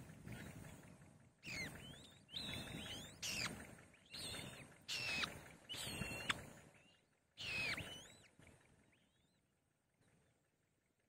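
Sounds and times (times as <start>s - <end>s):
faint low rumble: 0.0s - 11.0s
bird chicks whistled begging cries: 1.4s - 9.4s.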